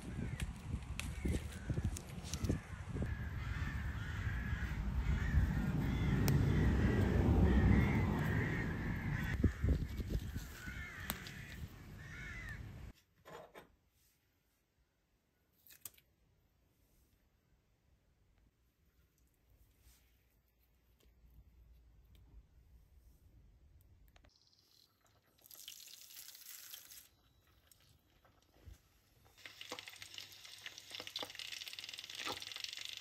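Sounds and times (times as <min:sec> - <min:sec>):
wind rushing on microphone: 0:00.0 - 0:11.7
birds calling: 0:00.0 - 0:12.9.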